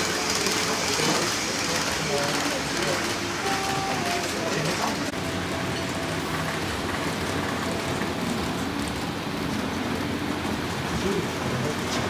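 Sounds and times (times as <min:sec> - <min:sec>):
model train wheels rolling on rail: 0:00.0 - 0:12.0.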